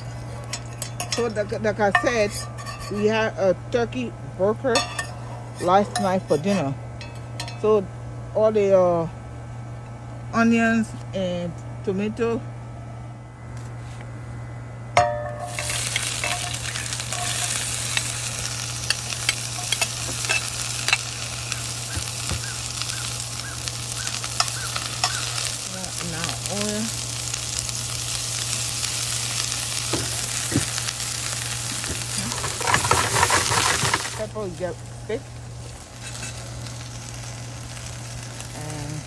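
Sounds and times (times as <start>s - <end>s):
onions sizzling in a frying pan: 15.0s - 39.0s.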